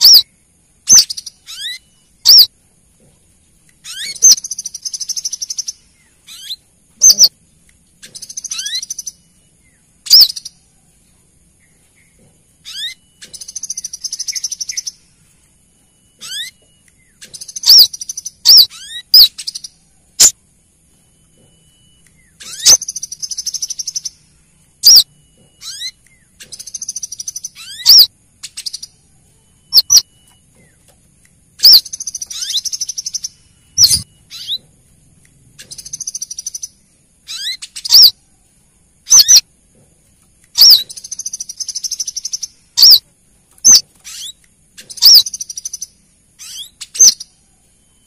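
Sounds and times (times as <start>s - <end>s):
rapid high bird twittering: 0.0s - 2.6s, 3.6s - 10.7s, 11.5s - 20.4s, 21.0s - 30.9s, 31.5s - 34.7s, 35.5s - 39.5s, 40.5s - 48.0s
sharp high bird call notes: 31.6s - 34.6s.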